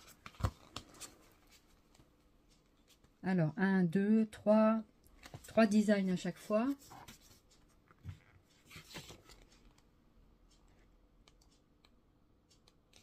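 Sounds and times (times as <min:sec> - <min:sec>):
paper pages being turned: 0:00.0 - 0:02.0, 0:08.1 - 0:09.8.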